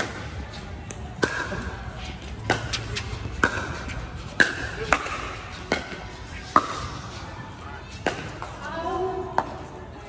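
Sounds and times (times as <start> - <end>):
ball bouncing: 0.0 - 7.2, 7.9 - 8.6
paddles striking ball: 2.4 - 7.0.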